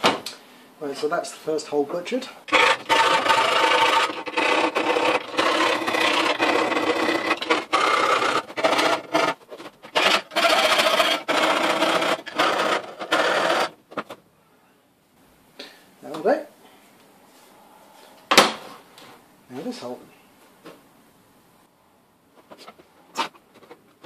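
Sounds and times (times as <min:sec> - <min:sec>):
hand file rasping on metal: 0:02.5 - 0:13.7.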